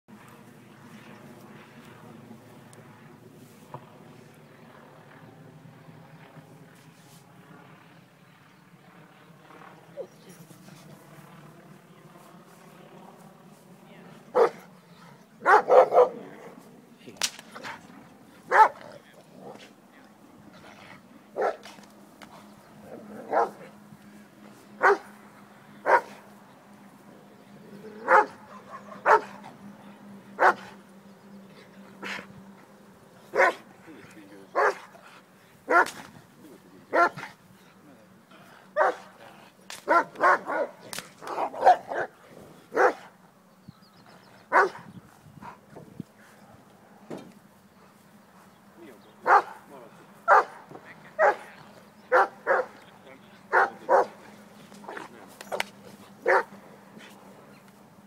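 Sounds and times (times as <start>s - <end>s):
dog barking: 14.3s - 14.6s, 15.4s - 16.2s, 18.5s - 18.8s, 21.4s - 21.6s, 23.3s - 23.6s, 24.8s - 25.1s, 25.8s - 26.2s, 28.1s - 29.4s, 30.4s - 30.7s, 33.3s - 33.6s, 34.6s - 34.9s, 35.7s - 35.9s, 36.9s - 37.3s, 38.8s - 39.0s, 39.9s - 40.8s, 41.4s - 42.1s, 42.7s - 43.1s, 44.5s - 44.8s, 49.2s - 49.6s, 50.3s - 50.6s, 51.2s - 51.5s, 52.1s - 52.8s, 53.5s - 54.2s, 56.2s - 56.5s.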